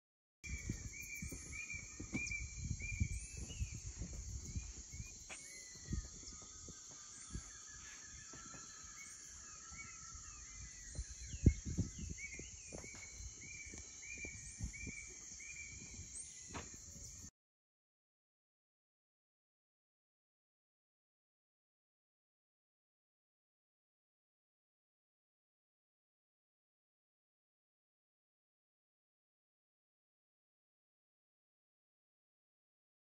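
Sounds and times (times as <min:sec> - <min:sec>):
birds whistling: 0:00.4 - 0:17.2
insect drone: 0:00.5 - 0:17.3
chattering calls: 0:05.4 - 0:16.3.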